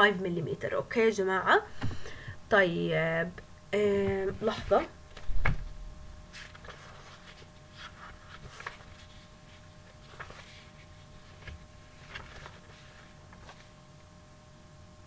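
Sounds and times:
faint steady hum: 0.0 - 15.0
dull thump: 5.2 - 5.8
faint clicks and rustles: 6.4 - 13.8.

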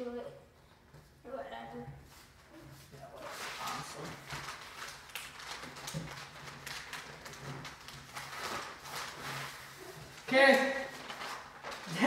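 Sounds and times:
paper rustling and scraping: 2.1 - 10.3, 10.9 - 12.0.

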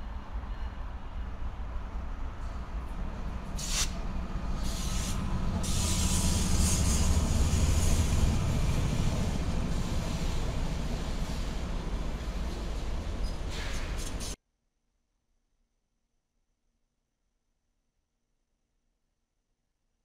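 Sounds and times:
diesel locomotive engines rumbling: 0.0 - 14.4
short hissing bursts: 3.6 - 4.0, 4.6 - 7.1.

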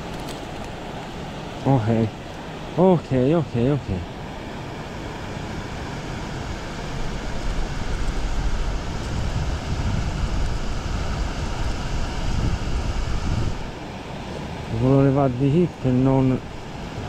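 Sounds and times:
wind buffeting microphone: 5.6 - 13.8.

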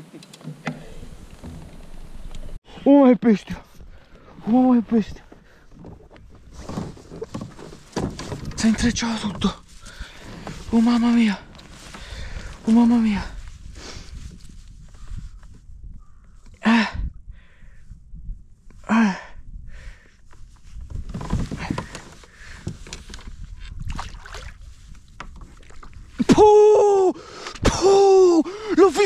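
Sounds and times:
water and handling noise: 3.7 - 14.8, 20.2 - 26.3
man shouting excitedly: 26.2 - 29.0.

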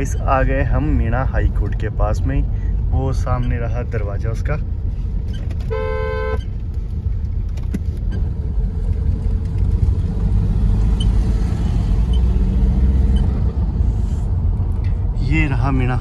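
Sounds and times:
car cabin road rumble: 0.0 - 16.0
vehicle horn: 5.7 - 6.5.

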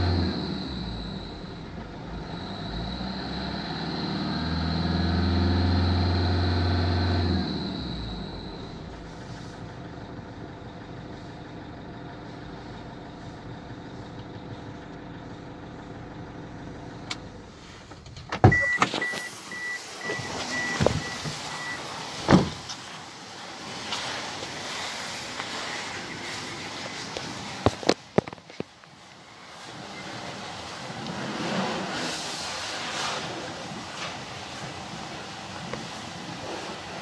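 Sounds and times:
car engine idling: 0.0 - 3.4, 4.6 - 31.1
car door thumps: 20.8 - 21.4, 22.2 - 22.7.

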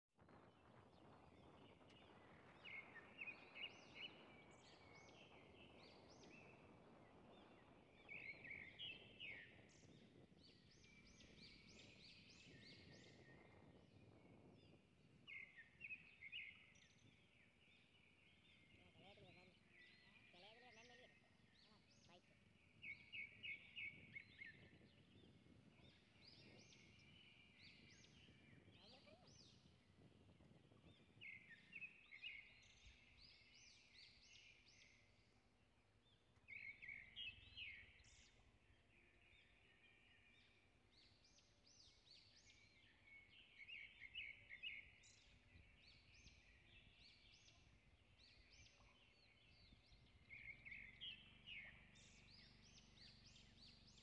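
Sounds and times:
outdoor background noise: 0.2 - 54.0
birds chirping: 0.6 - 54.0.

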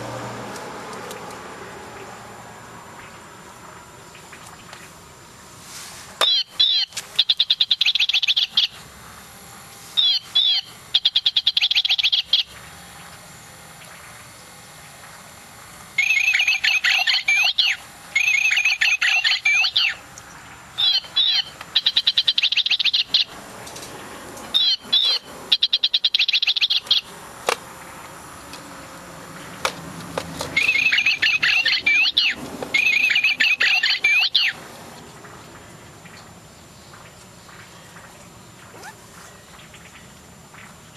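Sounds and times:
toy bird electronic chirps and trills: 6.2 - 8.8, 10.0 - 12.6, 16.0 - 20.0, 20.8 - 23.3, 24.5 - 27.1, 30.6 - 34.6.

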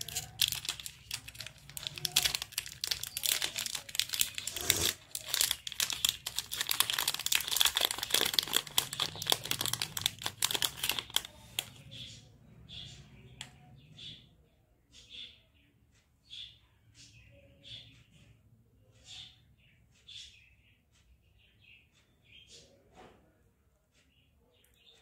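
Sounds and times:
foil wrapper crinkling: 0.0 - 11.8.

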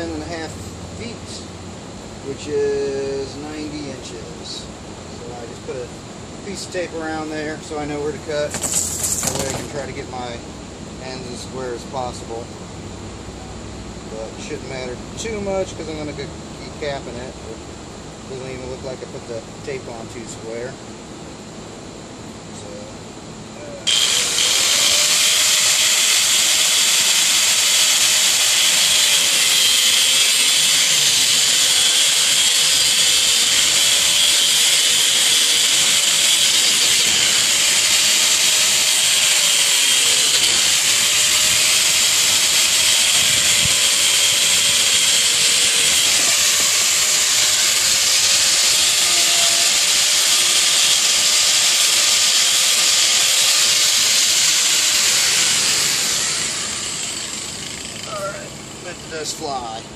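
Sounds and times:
angle grinder cutting plastic pipe: 8.5 - 9.8, 23.9 - 58.7.

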